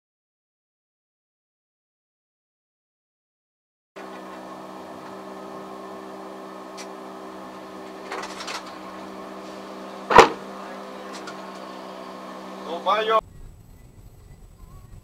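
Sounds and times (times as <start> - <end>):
vehicle engine hum in cabin: 4.0 - 15.0
sharp knock: 10.1 - 10.4.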